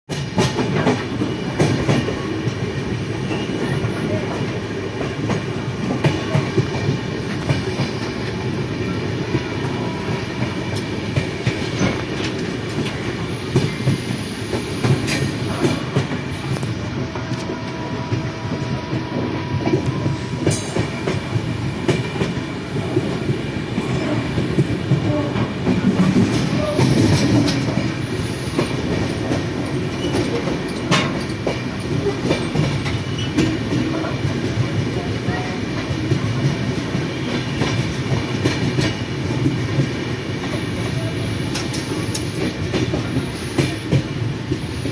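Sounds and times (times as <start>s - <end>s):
clickety-clack of rail joints: 0.1s - 44.9s
train wheels rumbling on rail: 0.1s - 44.9s.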